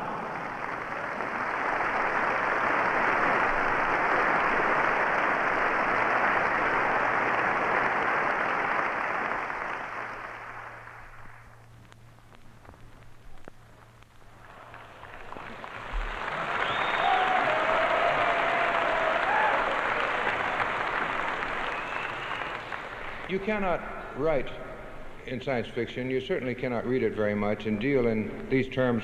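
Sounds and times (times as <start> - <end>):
audience applauding: 0.0 - 12.3, 14.2 - 24.5.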